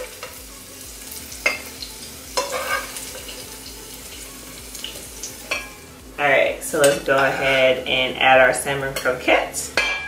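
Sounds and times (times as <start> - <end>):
metal utensil scraping a saucepan: 2.4 - 3.4, 6.7 - 10.0.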